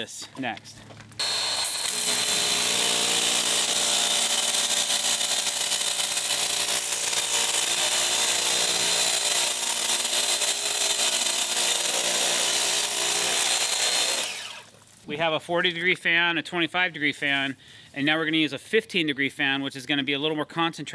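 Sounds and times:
pressure washer motor whining: 0:01.2 - 0:14.7.

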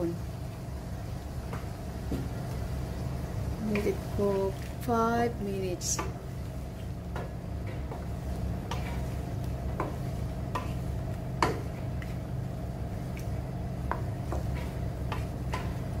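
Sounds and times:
steady low hum: 0:00.0 - 0:16.0
wooden spatula scraping wok: 0:05.8 - 0:12.3, 0:12.9 - 0:16.0.

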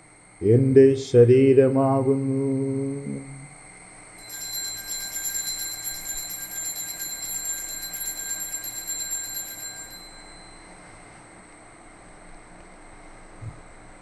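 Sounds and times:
altar bell ringing rapidly: 0:04.2 - 0:10.8.

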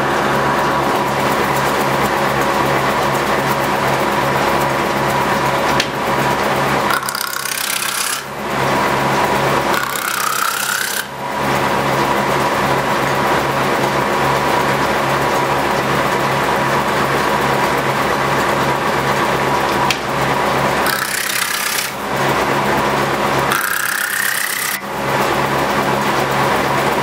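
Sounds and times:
planer cutting wood: 0:00.0 - 0:27.0
cutter disc humming: 0:05.5 - 0:12.2, 0:19.4 - 0:25.6.

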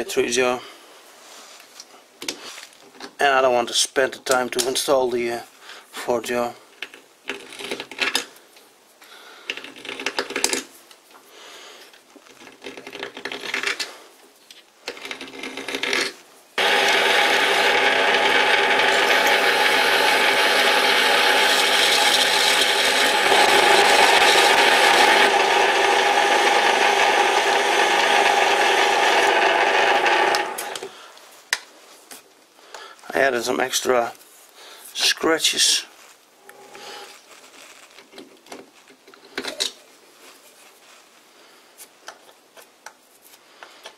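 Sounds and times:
metal lathe whine: 0:16.6 - 0:30.8.

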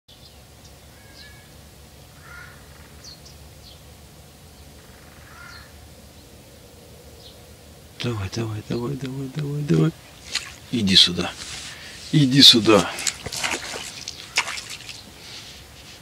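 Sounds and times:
small birds chirping: 0:00.1 - 0:16.0
faint crow caws: 0:00.9 - 0:01.6, 0:02.2 - 0:03.2, 0:04.7 - 0:05.9, 0:13.0 - 0:15.0.

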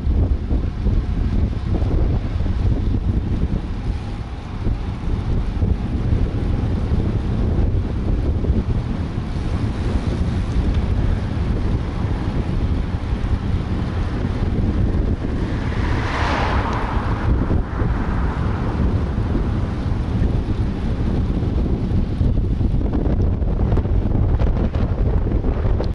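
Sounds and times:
low rumble: 0:00.0 - 0:25.9
wind buffeting microphone: 0:00.0 - 0:25.9
passing car tyre hiss: 0:15.0 - 0:20.1.

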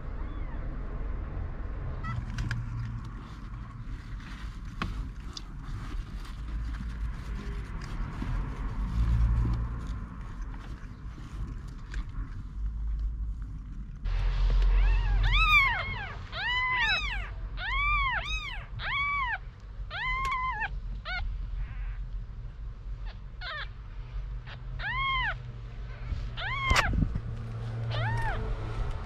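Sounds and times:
low rumble: 0:00.0 - 0:19.9
kitten mewing: 0:14.6 - 0:22.0, 0:26.4 - 0:27.0, 0:27.9 - 0:28.4.

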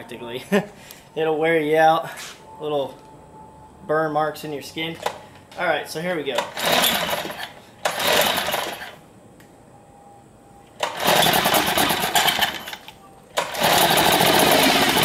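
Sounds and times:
outboard motor cranking: 0:06.4 - 0:09.0, 0:10.8 - 0:12.8, 0:13.4 - 0:15.0
outboard motor running: 0:13.5 - 0:15.0.

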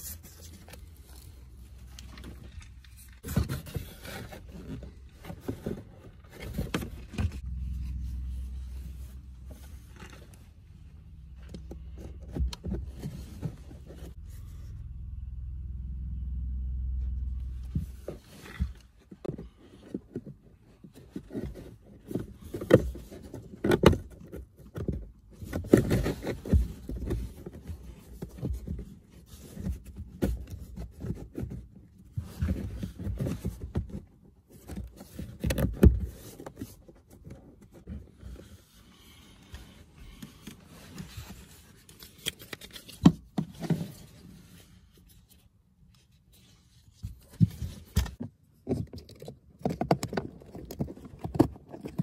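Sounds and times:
low rumble: 0:07.3 - 0:13.0, 0:14.0 - 0:18.8.

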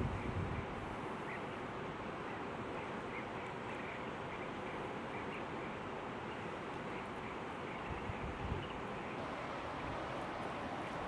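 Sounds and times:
river rushing: 0:09.2 - 0:11.0.

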